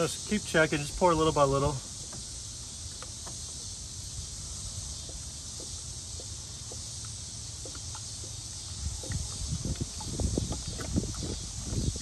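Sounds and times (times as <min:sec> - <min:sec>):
high insect hiss: 0:00.0 - 0:12.0
low wind rumble: 0:08.5 - 0:12.0.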